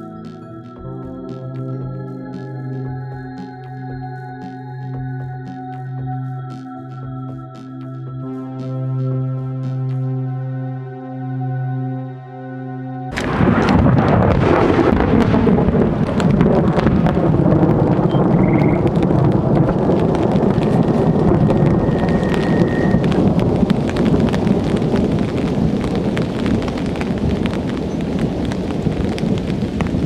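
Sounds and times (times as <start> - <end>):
rain drop ticks: 0.0 - 10.0, 13.1 - 30.0
steady rain: 0.0 - 10.0, 13.1 - 30.0
thunder rumbling: 13.1 - 30.0.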